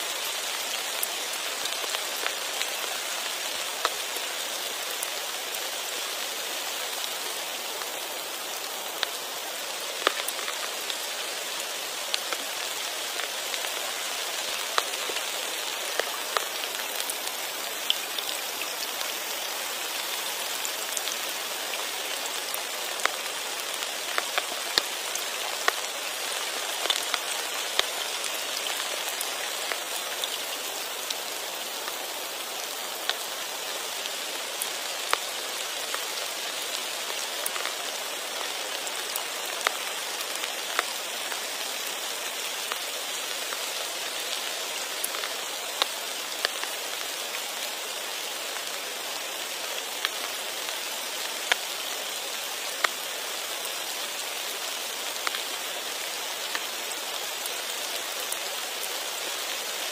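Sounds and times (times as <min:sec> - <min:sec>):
rain hissing on pond: 0:00.0 - 0:59.9
rain drop ticks: 0:10.0 - 0:18.9, 0:23.0 - 0:23.2, 0:23.8 - 0:30.5, 0:37.1 - 0:40.9, 0:45.0 - 0:47.0, 0:51.3 - 0:51.7, 0:55.2 - 0:56.7.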